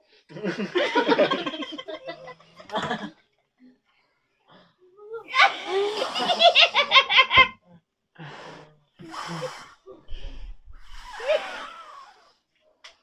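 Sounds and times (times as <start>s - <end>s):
laughter: 0.3s - 3.2s, 5.3s - 7.6s, 11.2s - 12.1s
man blowing breathy puffs: 8.3s - 12.5s.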